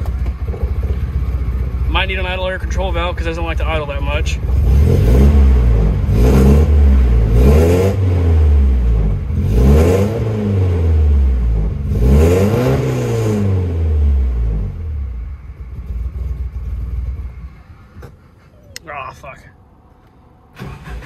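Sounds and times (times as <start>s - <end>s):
car engine revving: 0.0s - 18.4s, 20.5s - 21.0s.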